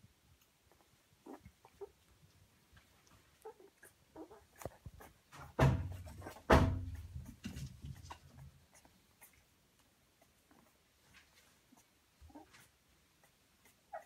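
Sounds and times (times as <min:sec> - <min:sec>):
puppies squeaking and whimpering: 0:00.7 - 0:02.1, 0:03.3 - 0:09.6, 0:11.6 - 0:14.0.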